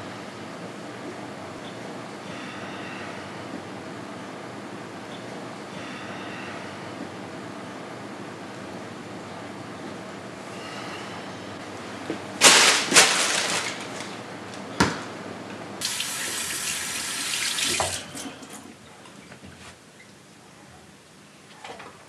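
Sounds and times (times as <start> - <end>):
tap water running into sink: 15.8 - 18.3.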